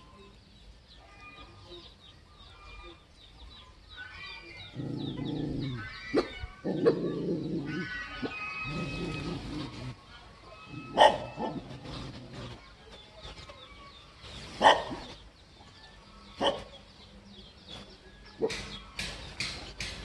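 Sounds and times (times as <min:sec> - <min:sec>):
dog barking: 0:10.9 - 0:11.7, 0:14.6 - 0:15.1, 0:16.4 - 0:16.7.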